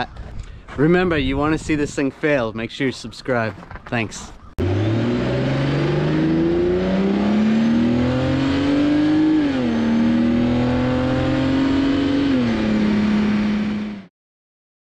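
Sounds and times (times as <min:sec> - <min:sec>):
car engine accelerating: 0:04.6 - 0:14.1.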